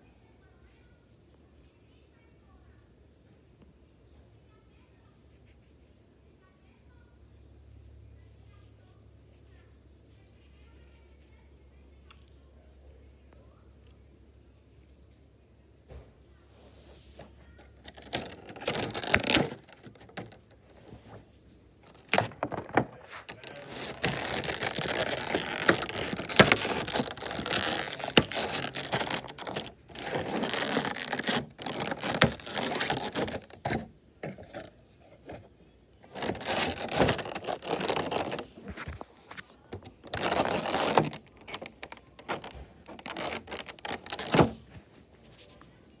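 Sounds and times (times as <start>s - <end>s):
plastic packaging crinkling: 17.4s - 20.4s, 21.8s - 35.4s, 36.0s - 44.6s.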